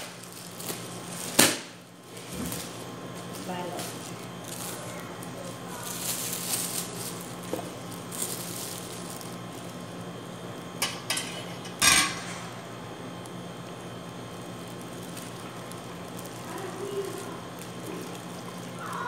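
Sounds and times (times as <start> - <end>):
plastic bag rustling: 0.0 - 10.1, 14.4 - 19.0.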